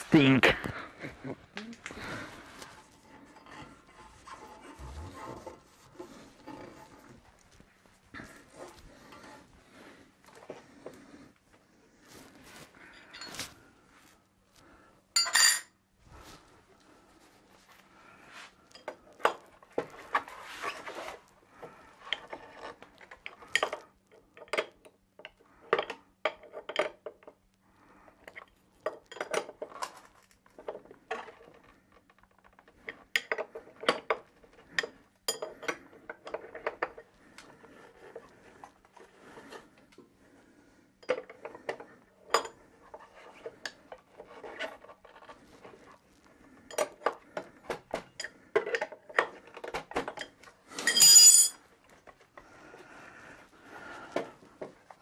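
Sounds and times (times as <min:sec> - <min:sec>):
metal tools clinking and scraping: 0:12.8 - 0:13.6, 0:15.2 - 0:15.8, 0:34.8 - 0:37.0, 0:48.1 - 0:52.0.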